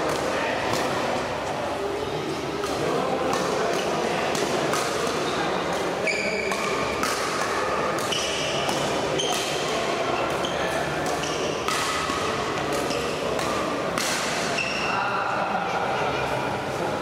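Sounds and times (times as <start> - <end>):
players on court: 0.0 - 17.0
voices echoing: 0.0 - 17.0
shoe squeaks: 6.0 - 6.6, 8.1 - 8.6, 9.2 - 9.4, 10.2 - 11.6, 14.6 - 15.0.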